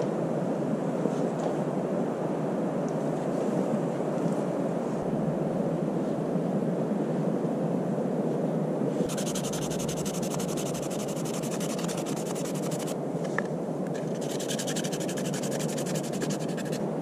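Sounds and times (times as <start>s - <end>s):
knife scraping wooden stick: 9.1s - 13.0s, 14.0s - 16.8s.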